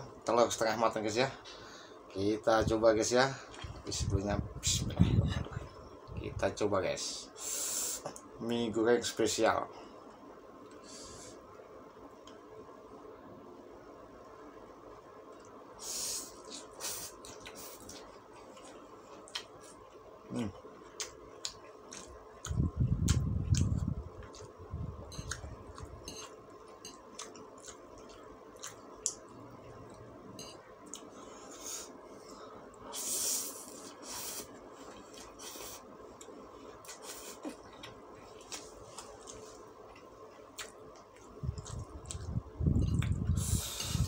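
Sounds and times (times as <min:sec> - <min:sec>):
low muffled rumbles: 0:03.6 - 0:06.6, 0:41.3 - 0:44.0.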